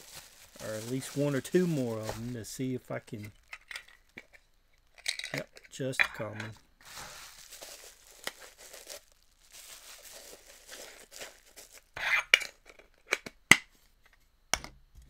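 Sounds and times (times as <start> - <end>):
plastic wrapping crinkling and tearing: 0.0 - 5.6, 6.8 - 12.0.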